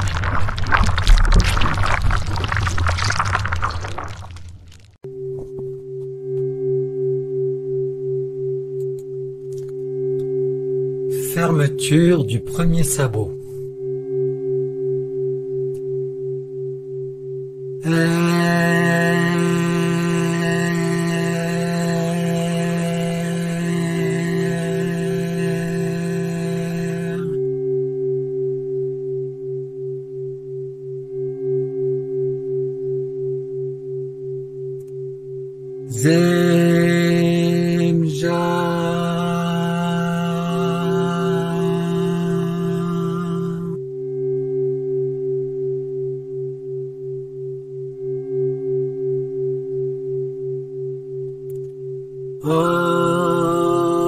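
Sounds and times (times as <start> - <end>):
pulsing meditation drone: 13.4 - 54.0.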